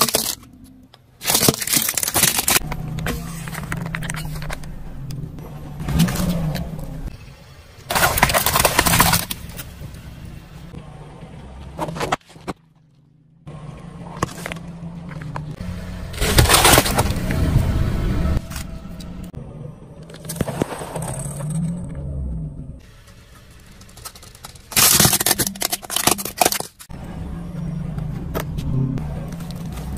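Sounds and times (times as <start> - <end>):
loud crunches and cracks: 0.0 - 0.6, 1.2 - 4.8, 7.9 - 9.8, 16.2 - 17.4, 23.3 - 26.9
tyre crushing plastic bottles: 0.0 - 0.6, 1.2 - 4.6, 7.9 - 9.8, 16.2 - 17.3, 23.4 - 26.9
car engine idling: 0.0 - 12.0, 12.6 - 29.9.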